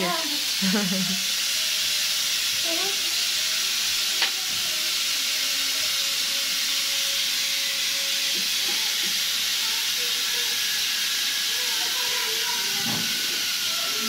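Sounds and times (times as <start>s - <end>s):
pressure cooker hissing: 0.0s - 14.0s.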